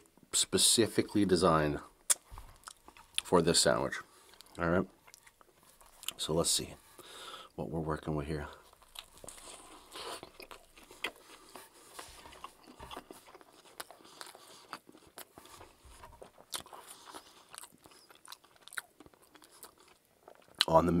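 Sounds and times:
close-up crunchy chewing: 2.0 - 6.4, 8.4 - 20.9.

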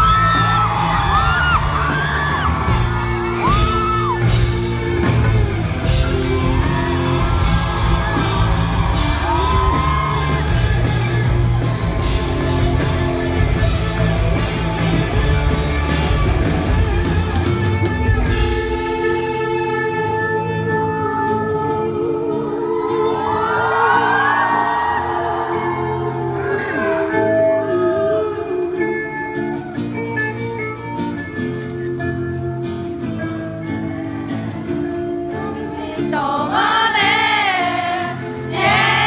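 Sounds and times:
crowd yelling: 0.0 - 18.9, 22.6 - 26.9, 36.6 - 39.0
rock band playing live: 0.0 - 21.9, 26.0 - 39.0
person singing: 18.5 - 29.2.

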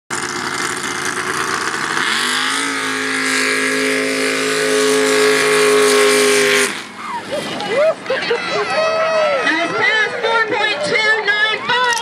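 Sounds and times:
truck engine revving hard: 0.1 - 8.7.

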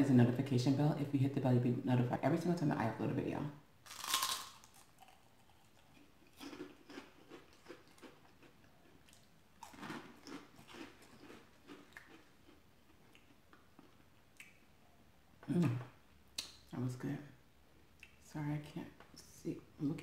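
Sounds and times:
person chewing snack food: 3.9 - 14.6.

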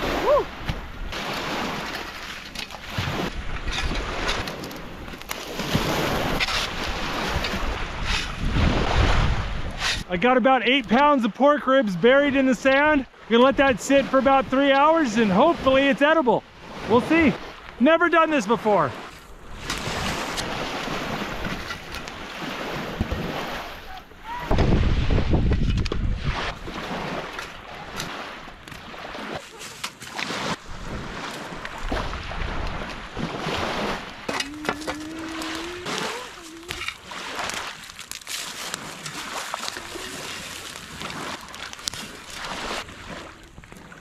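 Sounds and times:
lake waves washing on shore: 0.0 - 44.0
wind on microphone: 2.9 - 10.1, 19.4 - 29.2, 30.4 - 37.6.

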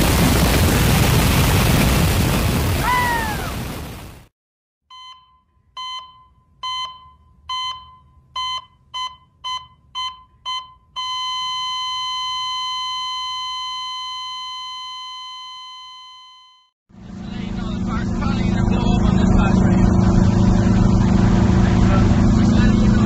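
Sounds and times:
long steady electronic tone: 11.0 - 16.7.

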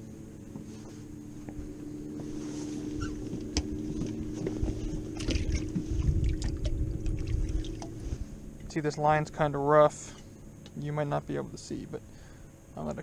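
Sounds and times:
boat motor humming: 0.0 - 13.0
water splashing: 4.4 - 9.2.

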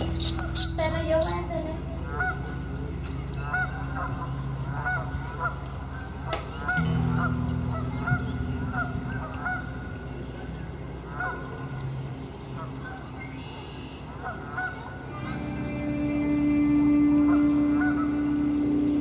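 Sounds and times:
geese honking: 0.0 - 19.0
low steady hum: 0.0 - 19.0.

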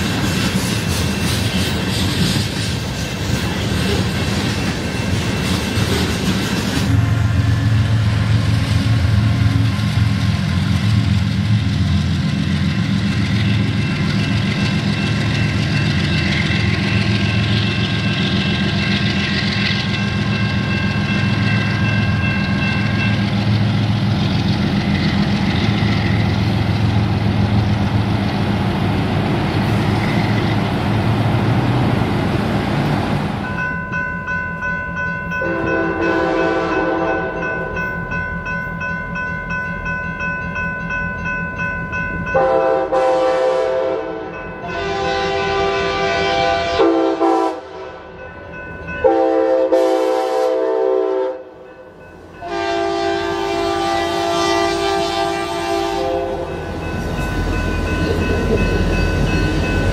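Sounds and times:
diesel locomotive engine drone: 0.0 - 59.9
rail car noise: 0.0 - 59.9.

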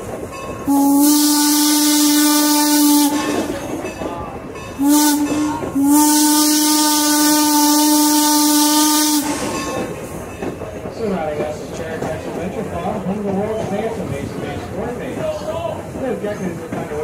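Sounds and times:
steam locomotive whistle: 0.6 - 3.5, 4.8 - 9.8.

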